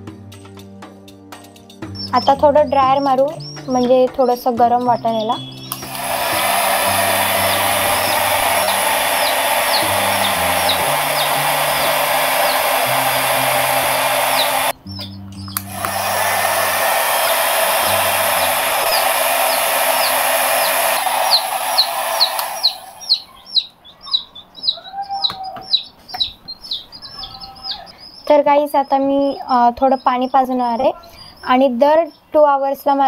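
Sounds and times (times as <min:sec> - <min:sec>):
baby chick peeping: 0:01.7 - 0:33.0
hair dryer blowing: 0:05.7 - 0:14.8, 0:15.6 - 0:23.3.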